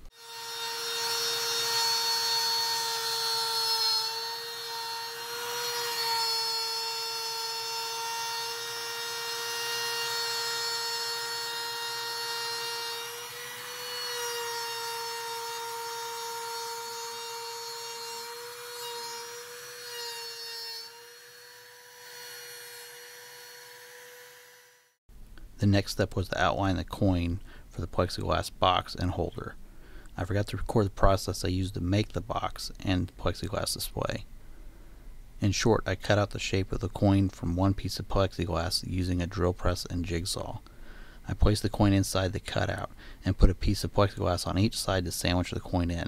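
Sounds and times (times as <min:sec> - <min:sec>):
router bit cutting wood: 0:00.0 - 0:25.0
trim router whining: 0:00.0 - 0:25.0.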